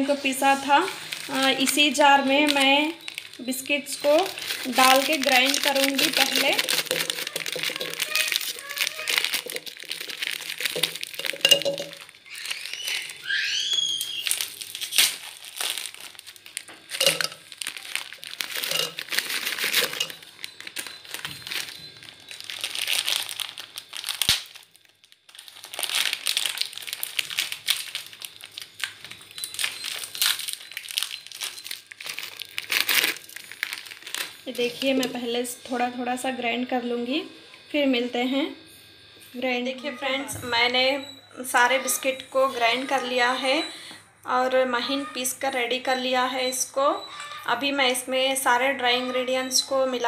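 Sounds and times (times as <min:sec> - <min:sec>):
plastic wrappers crinkling: 0:00.0 - 0:35.3.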